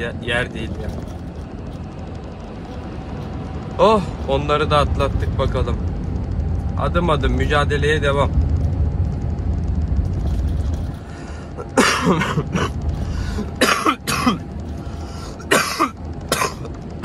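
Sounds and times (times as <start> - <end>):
truck cab rumble: 0.0 - 17.0
man coughing: 11.6 - 14.5, 15.4 - 16.7.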